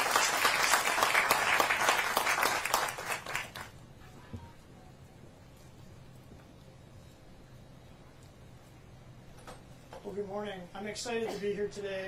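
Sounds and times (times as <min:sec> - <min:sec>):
audience applauding: 0:00.0 - 0:03.8.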